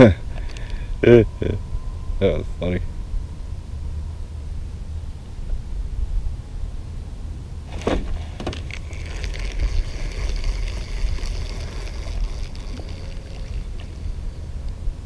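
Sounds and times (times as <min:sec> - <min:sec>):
wind rumble on microphone: 0:00.0 - 0:15.0
fishing reel clicks: 0:08.6 - 0:14.2
fishing line hissing off spool: 0:08.6 - 0:14.6.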